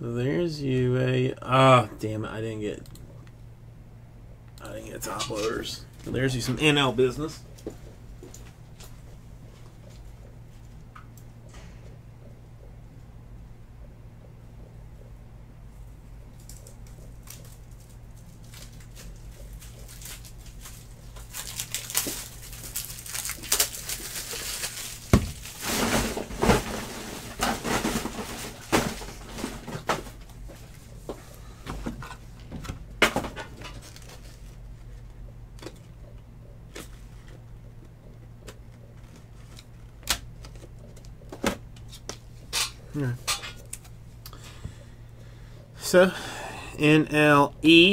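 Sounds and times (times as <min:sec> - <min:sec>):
plastic crinkling and rustling: 0:16.3 - 0:30.8, 0:33.3 - 0:35.9.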